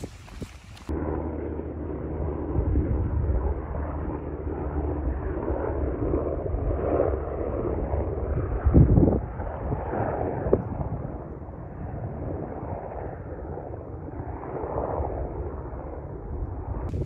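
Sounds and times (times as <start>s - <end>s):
distant helicopter rumble: 0.0s - 17.0s.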